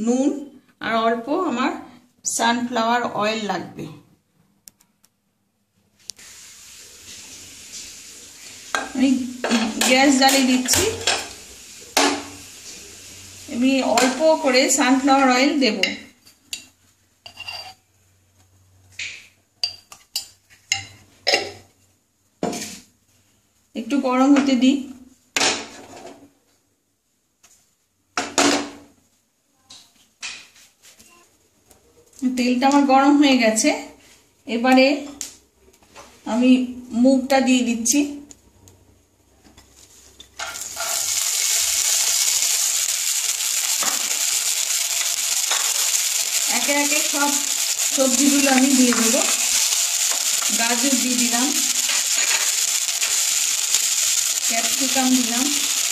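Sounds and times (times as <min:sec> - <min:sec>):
beans sizzling in hot oil: 0:06.0 - 0:17.6, 0:39.6 - 0:55.9
kitchenware clinking against a pan: 0:08.7 - 0:11.4, 0:15.8 - 0:17.8, 0:40.3 - 0:41.1.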